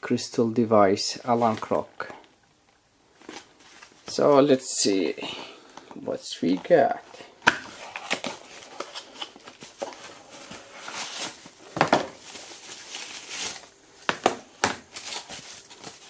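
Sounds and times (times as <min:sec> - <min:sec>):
wrapping sheet rustling: 0:07.8 - 0:14.1, 0:14.8 - 0:16.0.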